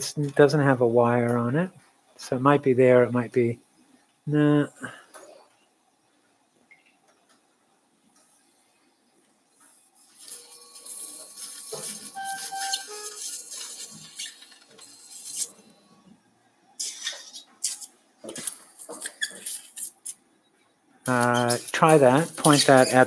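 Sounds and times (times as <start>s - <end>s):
short ringing tones: 10.2s - 16.0s.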